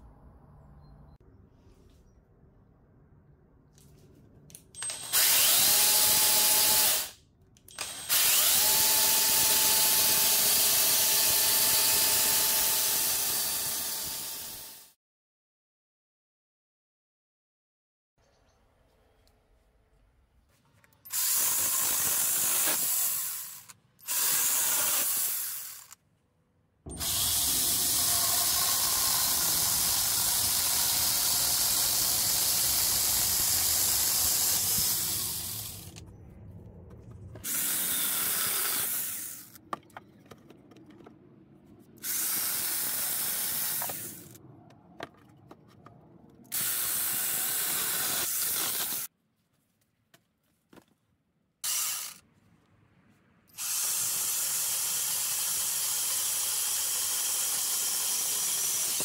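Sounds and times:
chainsaw sawing through logs: 0:53.6 - 0:59.0.

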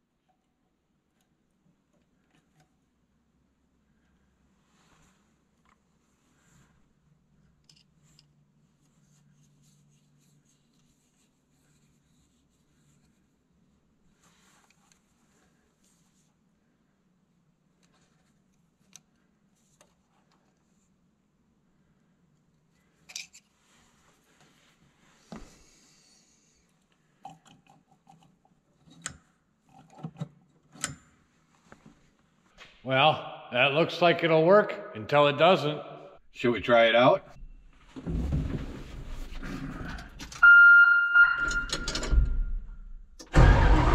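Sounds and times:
light clicks of small metal parts: 0:07.6 - 0:08.4.

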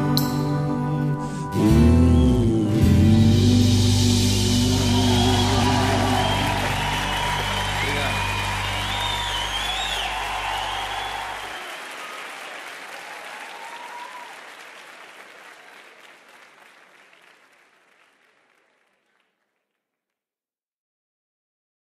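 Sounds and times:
audience applauding: 0:04.6 - 0:19.7.

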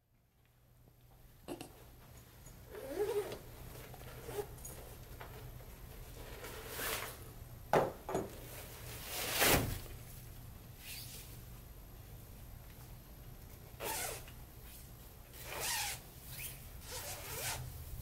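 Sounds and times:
reflector fabric crinkling and rustling: 0:02.6 - 0:07.3.

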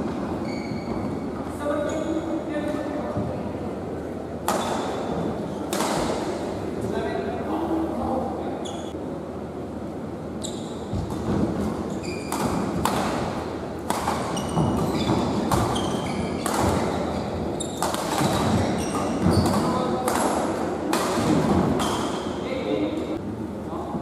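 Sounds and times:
shoes squeaking on court: 0:00.4 - 0:02.4, 0:10.4 - 0:12.8, 0:14.1 - 0:19.9
racket hitting shuttlecock: 0:04.4 - 0:06.3, 0:11.0 - 0:22.3.

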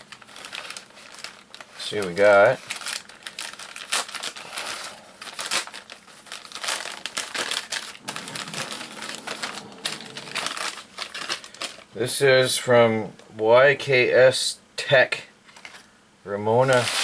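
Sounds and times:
plastic mailer bag crinkling: 0:00.0 - 0:12.2, 0:16.6 - 0:17.0.

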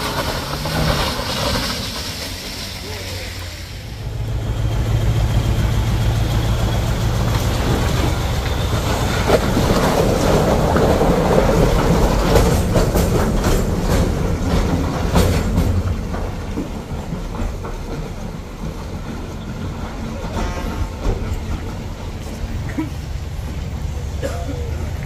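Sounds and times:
heavy vehicle engine under load: 0:00.0 - 0:25.0
rattling and clanking knocks: 0:05.6 - 0:22.4.

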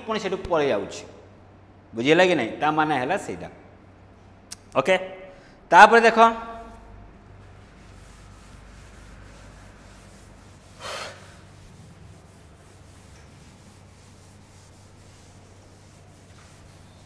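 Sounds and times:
low steady hum: 0:00.0 - 0:17.0
duster rubbing a chalkboard: 0:07.4 - 0:17.0.

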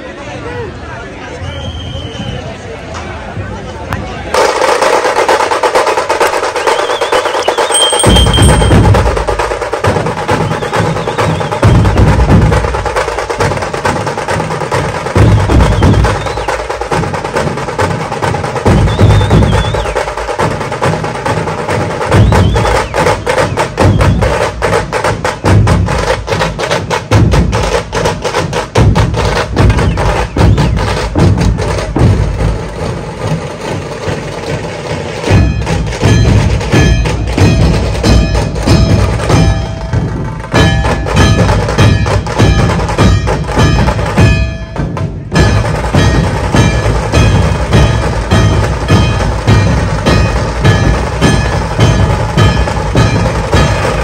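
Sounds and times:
heavy dhol beats: 0:04.3 - 0:54.0
ringing metallic layer: 0:07.6 - 0:09.4, 0:35.3 - 0:54.0.

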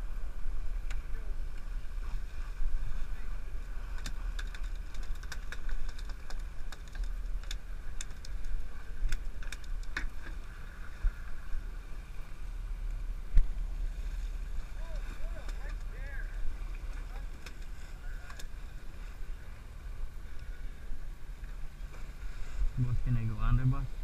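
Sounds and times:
boat engine rumble: 0:00.0 - 0:24.0
wind: 0:00.0 - 0:24.0
sharp clicks and ticks: 0:04.0 - 0:10.1.

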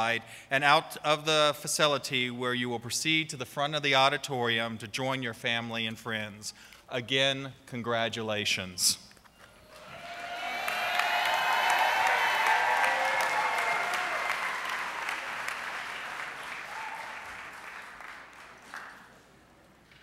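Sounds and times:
audience applauding: 0:09.6 - 0:19.3.

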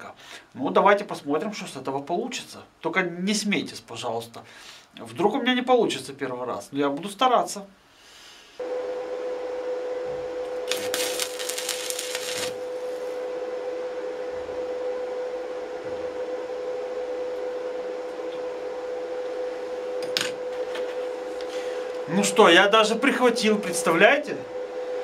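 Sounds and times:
steady hum with hiss: 0:00.0 - 0:25.0
welding arc crackling: 0:10.6 - 0:13.2.

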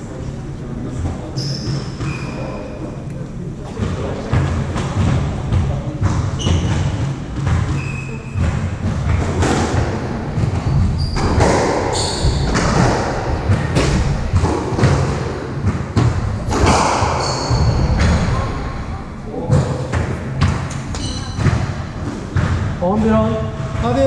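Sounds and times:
rackets hitting squash ball: 0:01.0 - 0:02.6, 0:03.7 - 0:24.0
shoes squeaking on wooden floor: 0:06.3 - 0:08.8, 0:10.4 - 0:15.0, 0:16.7 - 0:18.4.

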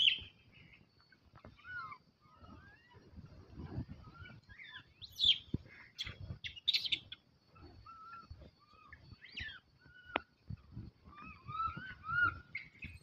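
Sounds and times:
animal chirps and squeaks: 0:00.0 - 0:00.3, 0:01.4 - 0:10.4, 0:11.0 - 0:13.0.

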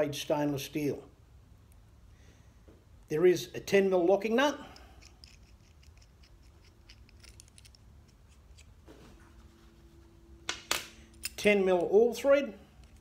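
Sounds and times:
sharp metal clicks: 0:04.8 - 0:08.7, 0:10.6 - 0:11.9.

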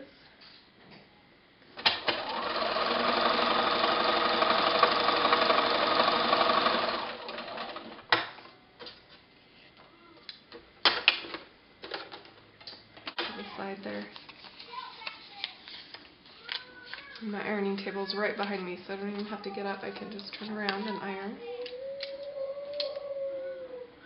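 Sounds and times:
sewing machine stitching: 0:01.8 - 0:08.0.

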